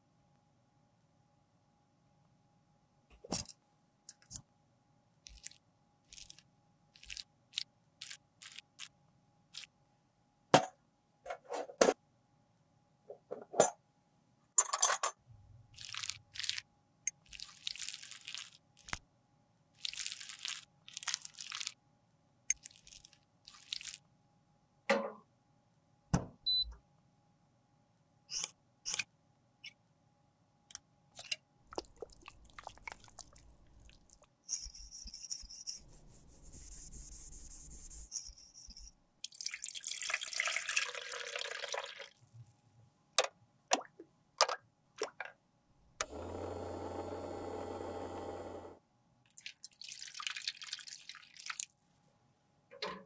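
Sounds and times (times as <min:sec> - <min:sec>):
metal spatula scraping lipstick: 0:34.5 - 0:38.9.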